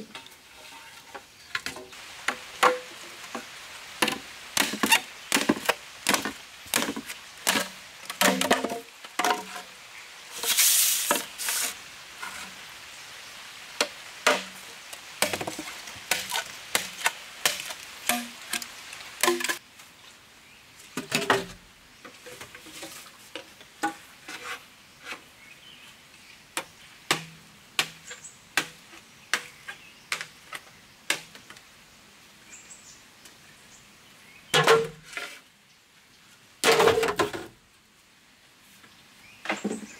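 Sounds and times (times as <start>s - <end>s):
machete chopping bamboo: 4.0s - 9.4s, 15.2s - 18.7s, 27.1s - 29.5s.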